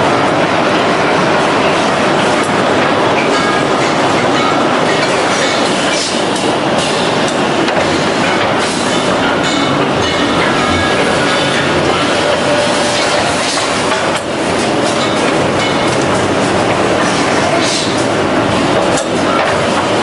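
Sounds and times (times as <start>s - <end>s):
machine running loudly: 0.0s - 20.0s.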